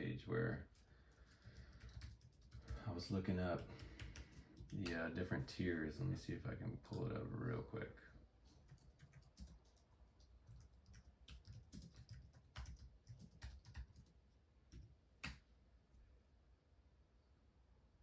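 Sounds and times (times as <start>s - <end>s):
faint typing clicks: 0.7s - 2.9s, 3.5s - 5.0s, 8.6s - 15.4s.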